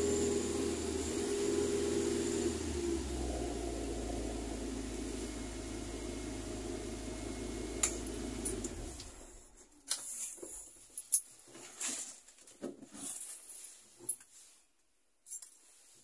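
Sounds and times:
car engine idling: 0.0s - 9.2s.

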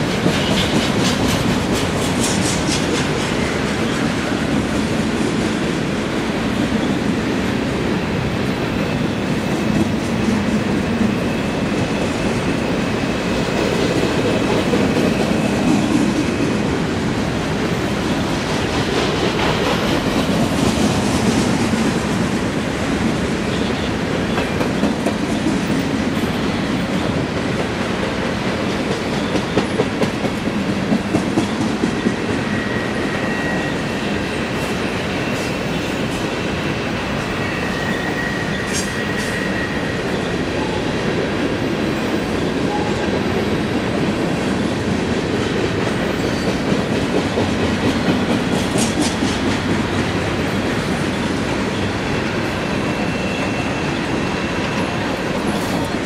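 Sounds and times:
clickety-clack over rail joint: 0.0s - 56.0s
train wheels rumbling on rail: 0.0s - 56.0s
high wheel squeal: 32.0s - 40.8s, 46.0s - 46.7s, 51.7s - 56.0s.

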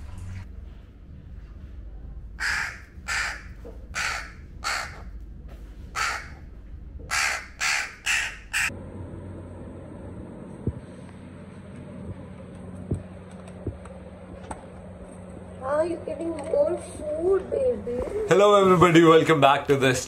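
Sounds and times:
young crow cawing: 2.4s - 5.1s, 5.9s - 6.4s, 7.1s - 8.7s.

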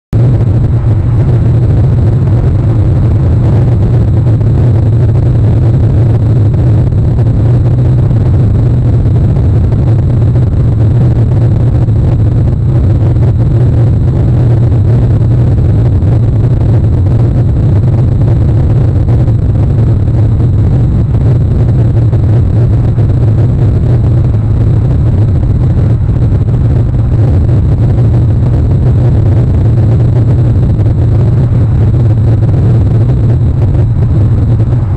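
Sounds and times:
wind buffeting microphone: 0.1s - 34.9s.

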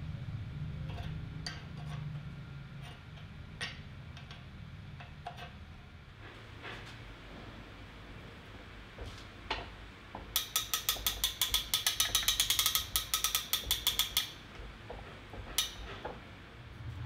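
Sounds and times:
ratchet pawl clicking: 10.3s - 14.4s.

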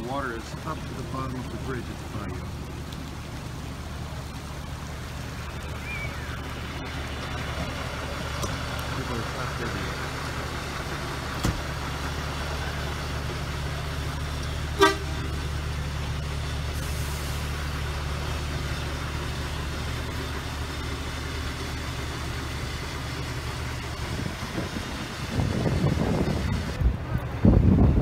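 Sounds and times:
vehicle engine idling: 0.0s - 28.0s
short horn toot: 14.8s - 15.2s.

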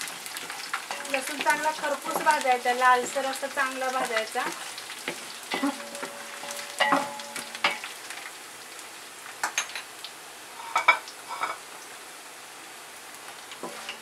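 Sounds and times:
spices sizzling in hot oil: 0.0s - 14.0s
wooden spatula scraping pot: 0.3s - 7.1s, 13.6s - 14.0s.

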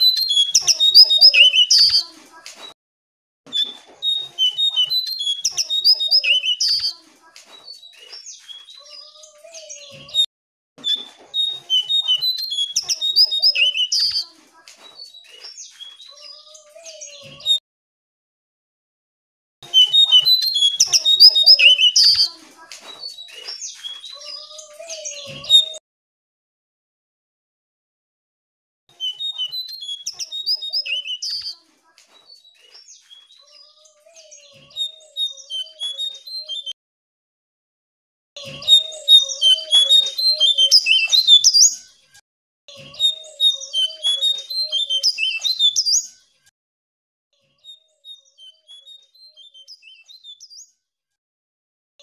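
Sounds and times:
songbird chirping and trilling: 0.0s - 2.8s, 3.5s - 10.3s, 10.9s - 17.6s, 19.6s - 25.8s, 28.9s - 36.8s, 38.4s - 42.0s, 42.8s - 46.3s, 47.4s - 50.8s.

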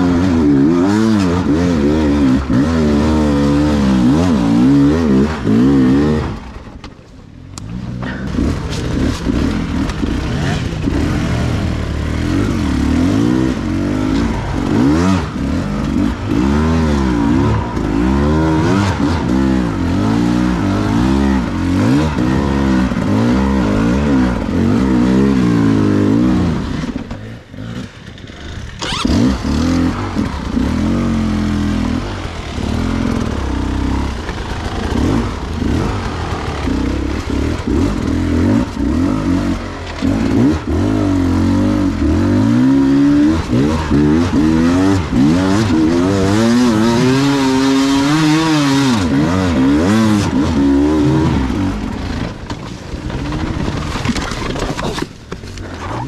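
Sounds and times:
two-stroke motorcycle engine revving: 0.0s - 56.0s
engine crack: 6.2s - 12.0s, 26.7s - 30.6s, 32.1s - 38.9s, 50.2s - 56.0s.

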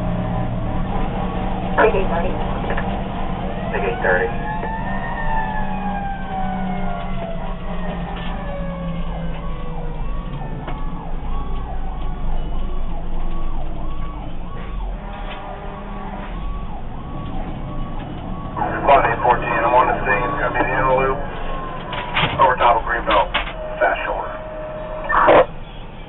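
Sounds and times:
truck engine running: 0.0s - 25.8s
siren sliding down in pitch: 0.2s - 25.5s
siren cycling up and down: 1.2s - 25.5s.

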